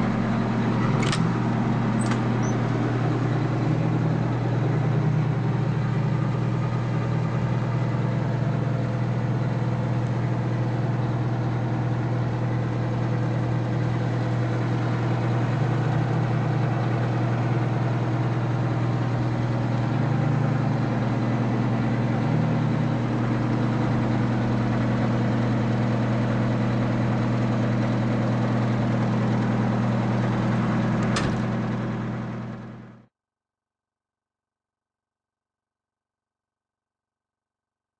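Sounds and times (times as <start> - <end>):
diesel engine idling: 0.0 - 33.0
sharp click: 0.9 - 1.3, 2.0 - 2.6.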